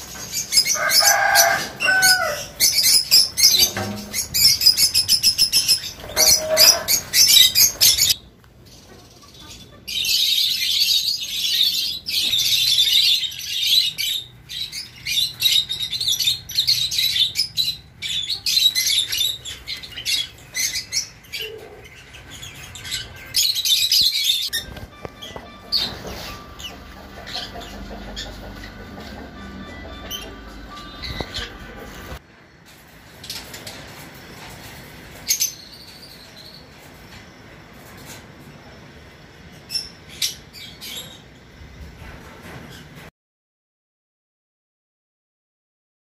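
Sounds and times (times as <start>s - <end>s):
lovebirds chirping: 0.0s - 32.2s.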